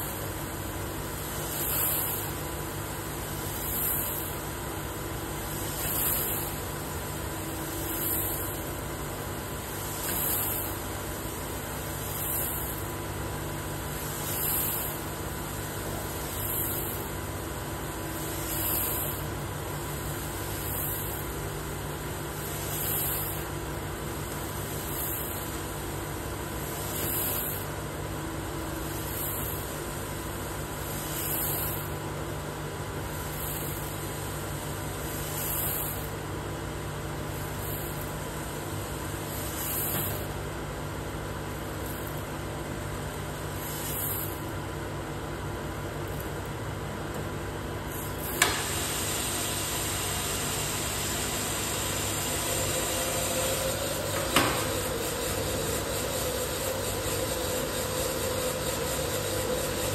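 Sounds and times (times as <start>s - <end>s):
coffee roaster humming: 0.0s - 59.9s.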